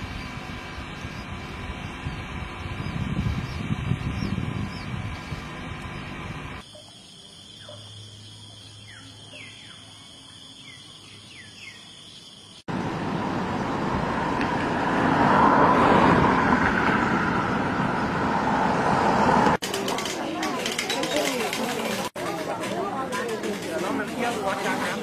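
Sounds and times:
loud even rushing noise: 12.7 - 19.6.

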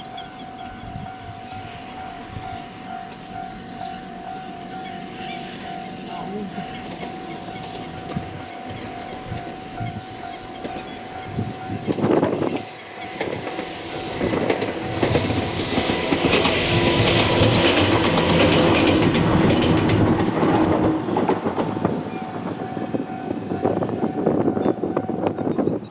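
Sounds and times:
electric train passing: 0.0 - 25.9
wind buffeting microphone: 0.5 - 3.5, 6.5 - 25.9.

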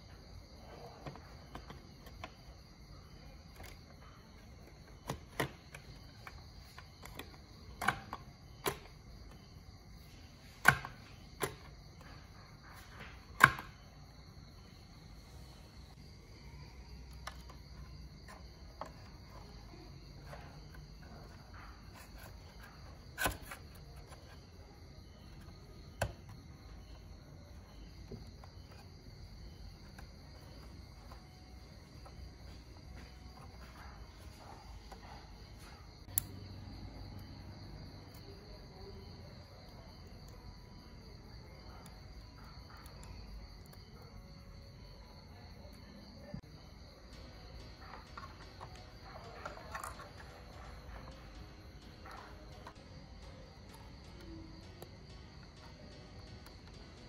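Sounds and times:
crickets chirring: 0.0 - 57.0
plastic clicks and knocks: 13.0 - 13.8.

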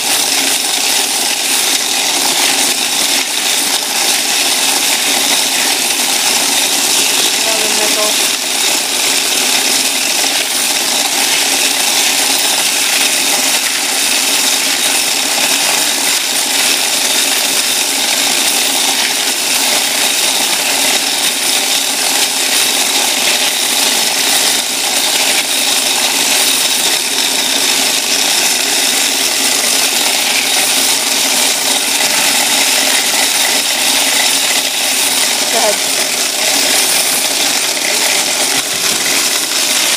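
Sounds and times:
coin counter with coins rattling: 0.0 - 39.9.

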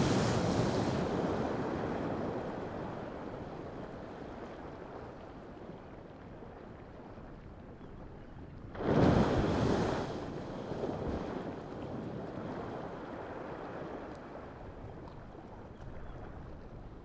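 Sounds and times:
geyser erupting water rush: 0.0 - 1.4.

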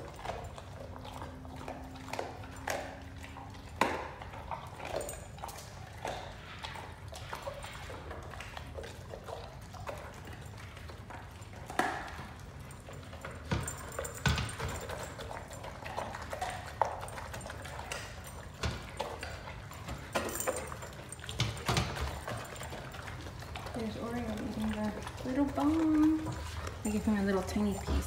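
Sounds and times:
dog chewing and licking: 0.0 - 28.0.

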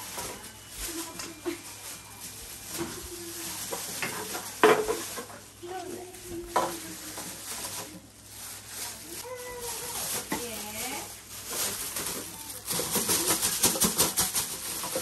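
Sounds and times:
plastic bag rustling: 0.0 - 15.0
plastic bottles knocking: 11.5 - 15.0.

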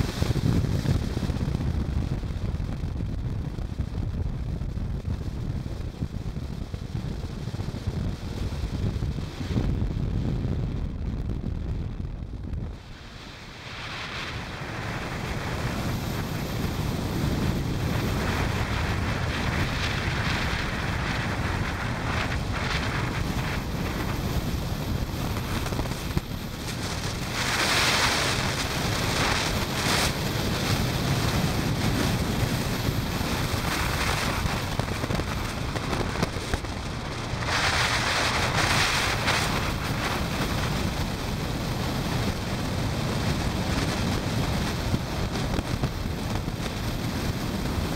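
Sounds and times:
wind buffeting microphone: 0.0 - 47.9.

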